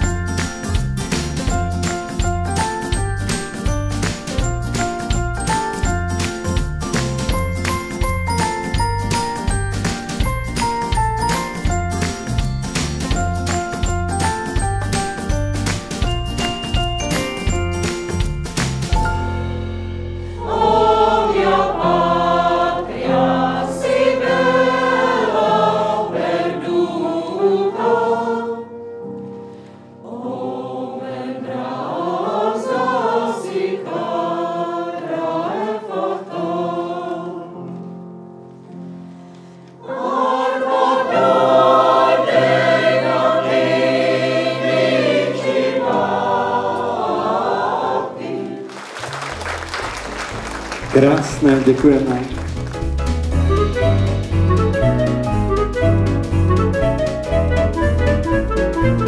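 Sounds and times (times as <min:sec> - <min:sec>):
mixed choir singing: 0:20.4 - 0:28.8, 0:30.0 - 0:37.7, 0:39.8 - 0:48.8.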